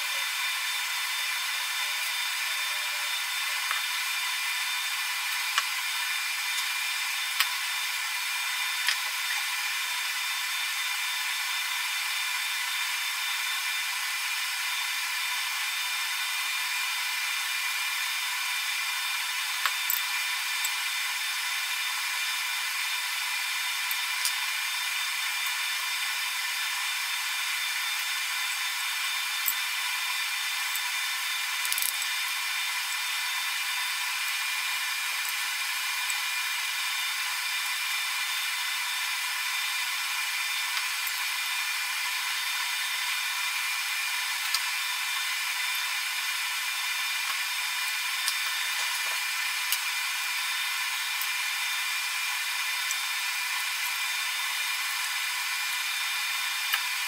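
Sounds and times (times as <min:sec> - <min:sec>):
high-pitched whine and hiss: 0:00.0 - 0:57.0
metal parts clicking: 0:31.6 - 0:32.1.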